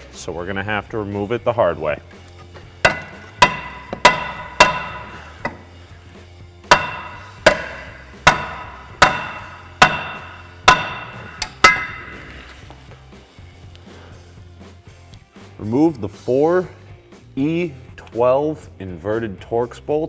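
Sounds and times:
hammer striking metal rotor: 2.8 - 5.7, 6.7 - 12.2.

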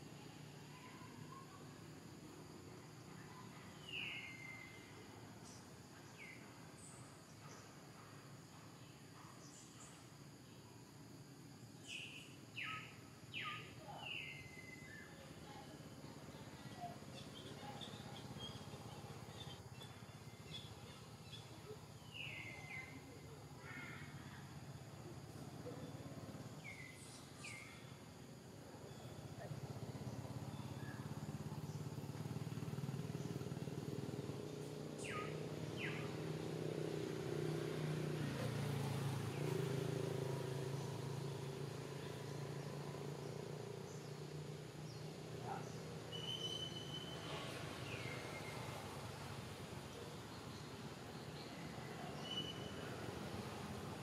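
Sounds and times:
birds chirping: 11.8 - 23.7, 28.7 - 39.9, 40.6 - 54.0.

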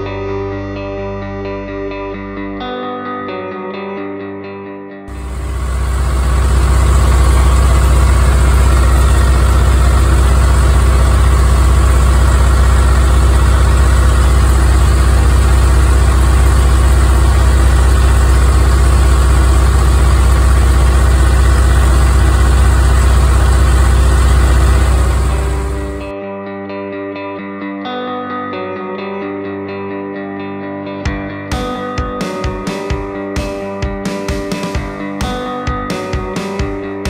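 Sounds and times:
tractor diesel engine running: 5.1 - 26.1.

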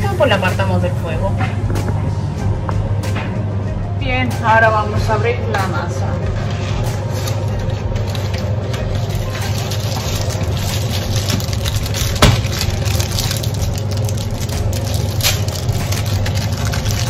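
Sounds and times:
steady low hum: 0.0 - 17.0
pastry packet rustling and crinkling: 7.0 - 17.0.

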